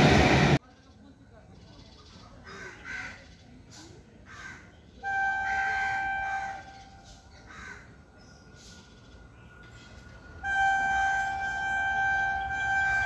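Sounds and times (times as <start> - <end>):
crows cawing: 4.3 - 4.7, 7.4 - 8.0
distant train horn: 5.0 - 7.3, 10.1 - 13.0.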